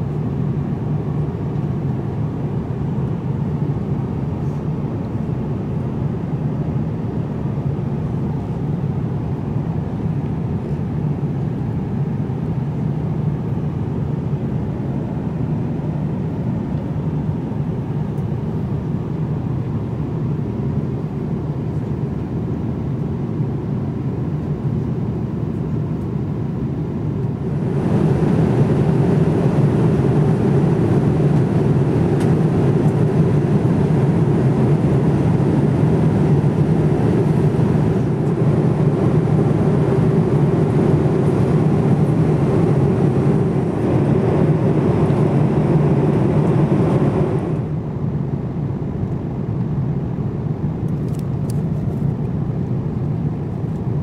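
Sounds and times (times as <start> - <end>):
jet airliner noise: 0.0 - 54.0.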